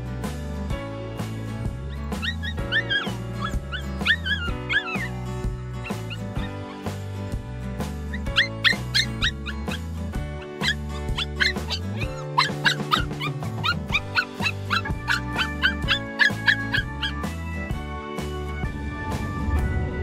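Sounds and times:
background music low notes: 0.0 - 20.0
puppy whining and yelping: 1.9 - 7.0, 8.1 - 17.5.

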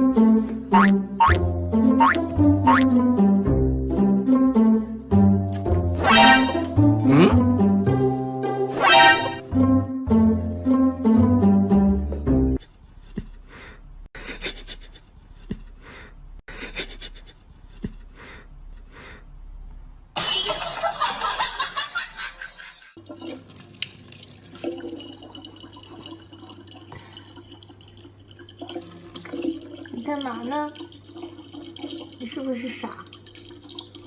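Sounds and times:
water pouring into plastic jug: 23.0 - 34.0.

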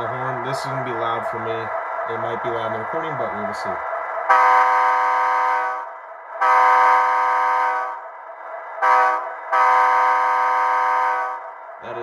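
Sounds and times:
model locomotive air horn: 4.3 - 8.0, 8.8 - 11.4.

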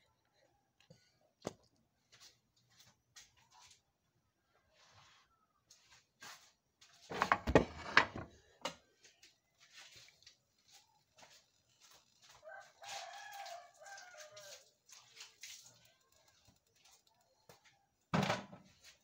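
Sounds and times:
rooster crowing: 12.2 - 14.7.

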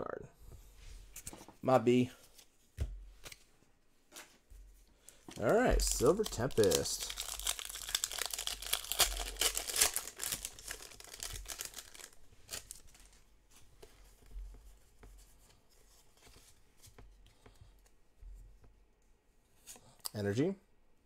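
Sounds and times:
cards clicking and rustling: 5.1 - 13.2
foil wrapper tearing and crinkling: 5.4 - 13.2.

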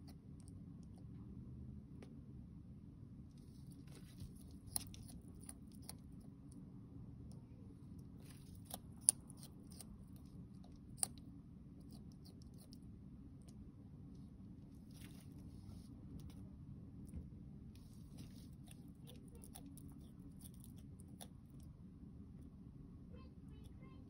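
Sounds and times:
faint steady low hum: 0.0 - 24.0
lizard crunching greens: 3.2 - 21.8.

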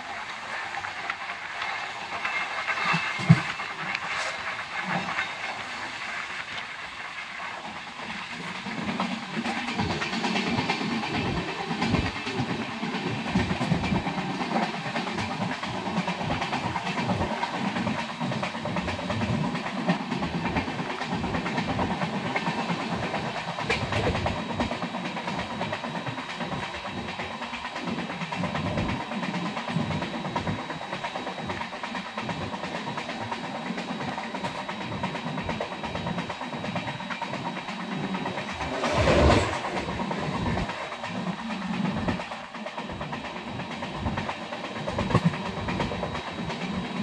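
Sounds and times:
train wheels clattering over rail joints: 8.1 - 47.0
rush of air: 38.2 - 40.9.

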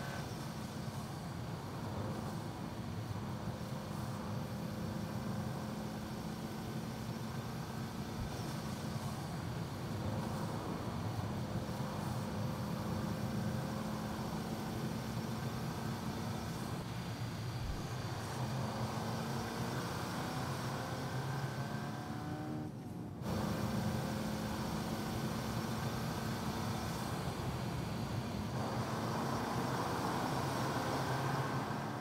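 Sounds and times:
car engine accelerating: 18.5 - 25.0.

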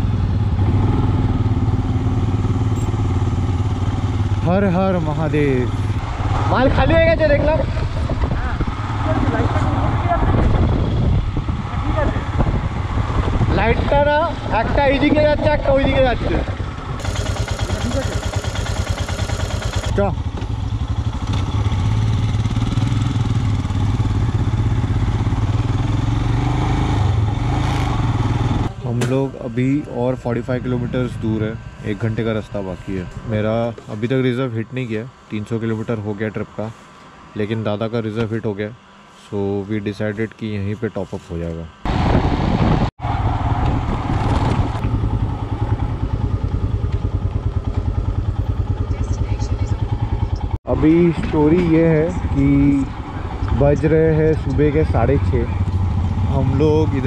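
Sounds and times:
motorcycle engine running: 0.0 - 36.7, 41.7 - 57.0
rushing wind noise: 5.8 - 17.0, 41.9 - 46.8
motorcycle engine thumping: 7.0 - 9.3, 15.8 - 25.6, 28.5 - 29.3, 43.5 - 54.7.

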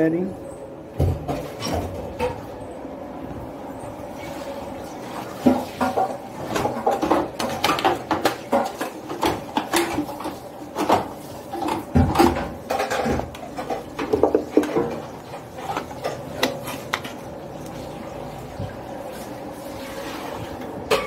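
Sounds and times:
washing machine parts rattling: 5.4 - 17.9.

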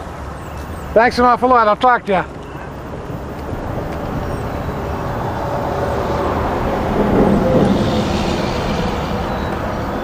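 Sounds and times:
passing vehicle rumble: 2.2 - 10.0.

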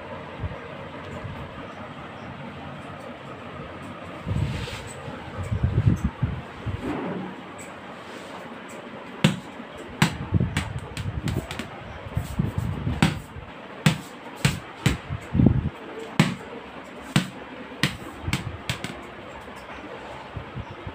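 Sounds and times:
plastic ball bouncing on hard floor: 9.2 - 11.7, 13.0 - 13.3, 17.2 - 19.0.

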